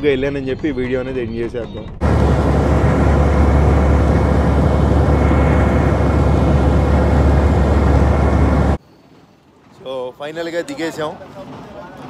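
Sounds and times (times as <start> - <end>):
bus engine and road rumble: 2.0 - 8.8.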